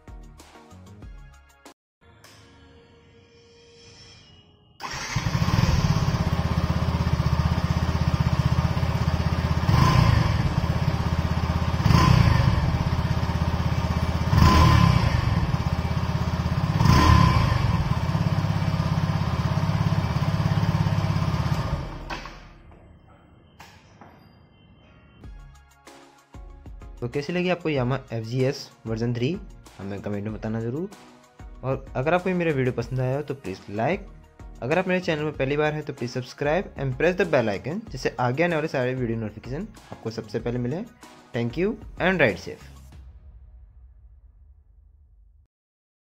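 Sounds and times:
motorcycle engine idling and revving: 4.8s - 22.8s.

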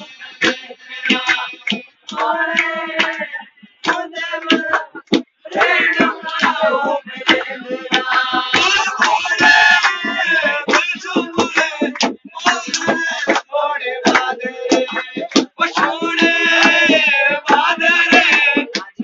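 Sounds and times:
dance music beat: 0.0s - 19.0s
person singing folk song: 0.0s - 19.0s.

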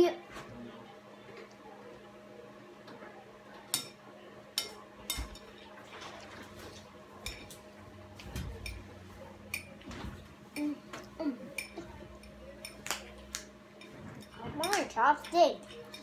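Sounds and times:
chopsticks clinking on ceramic plate: 13.8s - 16.0s.

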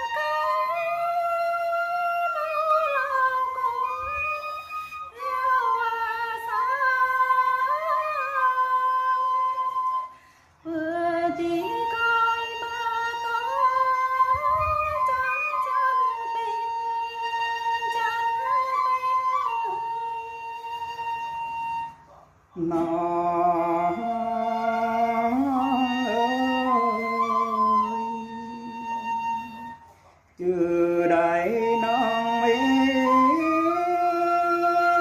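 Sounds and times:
woman singing folk song: 5.2s - 19.9s, 22.6s - 29.8s, 30.4s - 35.0s.

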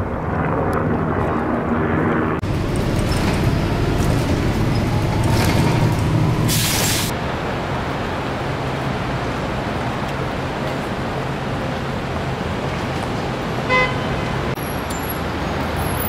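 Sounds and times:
wind and engine drone: 0.0s - 16.0s
vehicles rumbling past: 0.5s - 16.0s
short sharp hiss: 6.5s - 7.1s.

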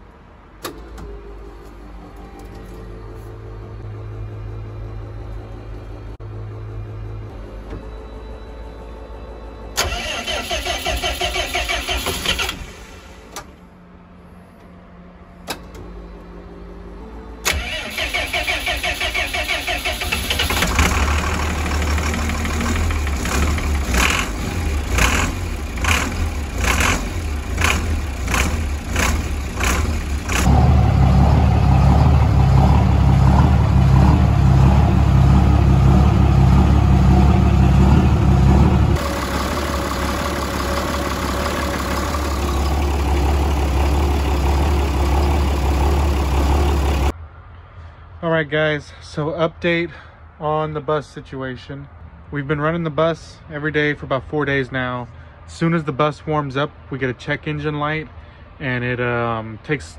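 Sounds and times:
diesel engine running: 0.0s - 47.1s
engine starter cranking: 9.8s - 13.5s, 17.4s - 23.0s.

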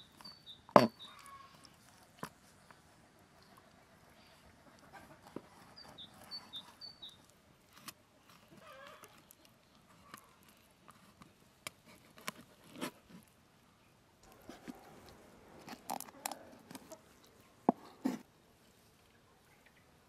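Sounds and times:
bird chirping: 0.0s - 1.7s, 3.4s - 7.3s.

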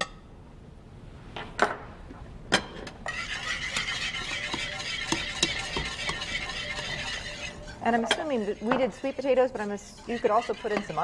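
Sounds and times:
utensils clinking on ceramic plates: 2.6s - 11.0s.

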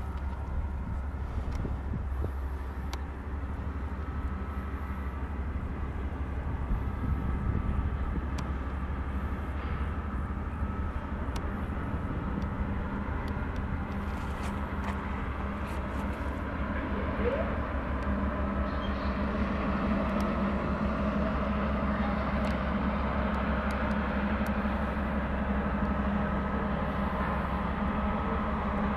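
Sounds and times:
freight train rumbling past: 0.0s - 28.9s.

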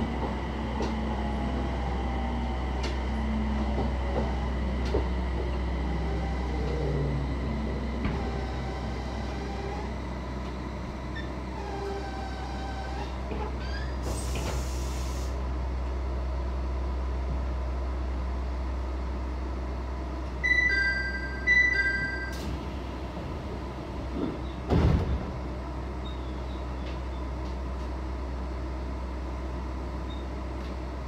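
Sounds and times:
sliding doors closing: 0.0s - 9.9s, 11.6s - 15.2s
electric train humming: 0.0s - 13.3s
air hiss: 14.1s - 15.4s
two-note falling door chime: 20.4s - 22.5s.

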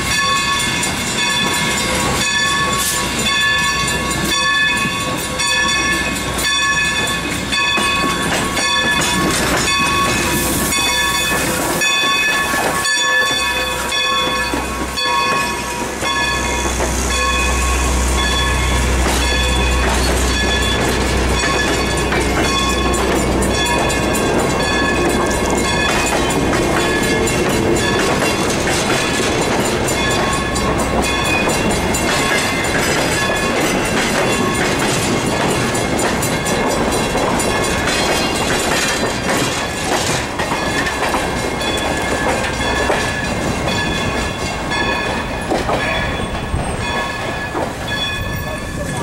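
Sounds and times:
locomotive bell ringing: 0.0s - 49.0s
train rolling past: 0.0s - 49.0s
steam hiss: 8.9s - 29.4s.

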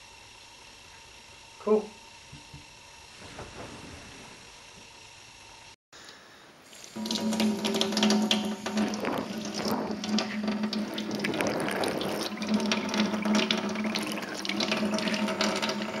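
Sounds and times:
steady low hum: 0.0s - 16.0s
tap water running and splashing: 6.7s - 16.0s.

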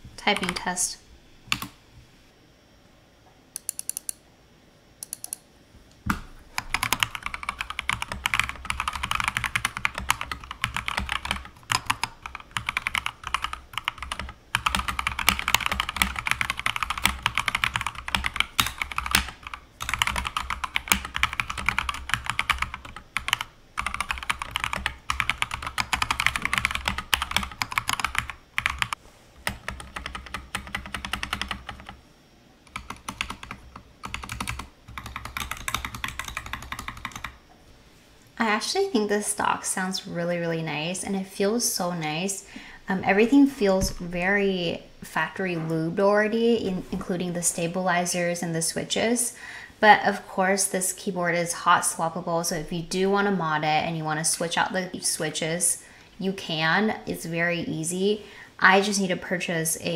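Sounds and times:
fast typing on mechanical keyboard: 0.2s - 0.6s, 6.6s - 32.0s, 32.7s - 37.4s.

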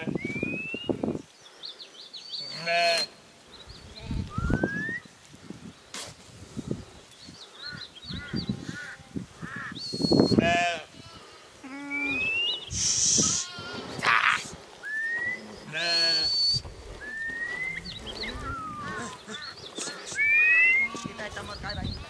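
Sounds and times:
sheep bleating: 2.4s - 3.1s, 13.2s - 14.2s, 15.6s - 16.4s, 20.6s - 21.5s
short rising whistles: 11.9s - 13.5s, 14.8s - 18.9s, 20.1s - 20.9s.

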